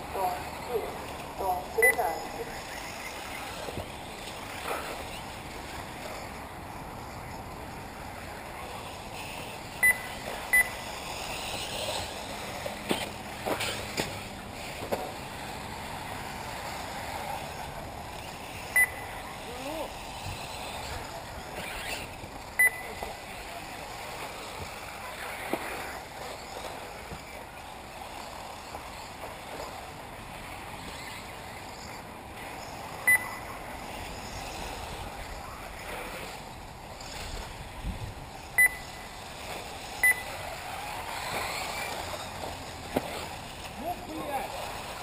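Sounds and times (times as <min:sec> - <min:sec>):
electric motors whining: 0:00.0 - 0:45.0
short sharp high beeps: 0:01.8 - 0:02.4, 0:09.8 - 0:10.8, 0:18.8 - 0:19.2, 0:22.6 - 0:23.0, 0:33.1 - 0:33.4, 0:38.6 - 0:39.0, 0:40.0 - 0:40.3.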